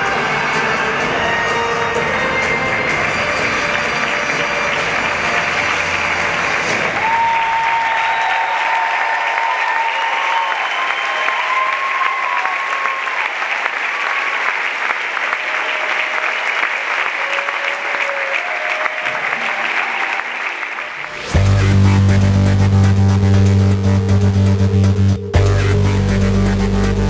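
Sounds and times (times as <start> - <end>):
backing music: 0.0 - 7.3, 20.8 - 27.0
large audience applauding: 0.0 - 21.4.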